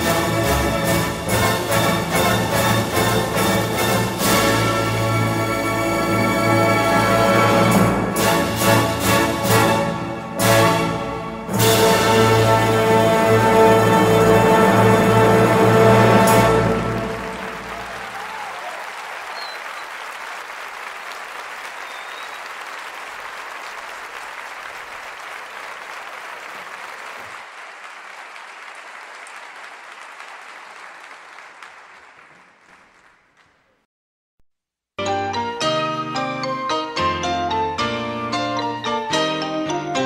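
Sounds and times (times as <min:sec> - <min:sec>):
music: 0:00.0 - 0:18.0, 0:35.0 - 0:40.0
audience applause: 0:13.7 - 0:33.8.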